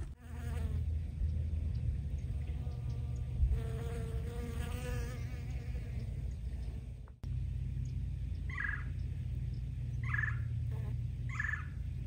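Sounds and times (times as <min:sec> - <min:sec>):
bee buzzing: 0:00.0 - 0:00.9, 0:02.3 - 0:06.9, 0:10.6 - 0:11.0
low steady rumble: 0:00.0 - 0:12.0.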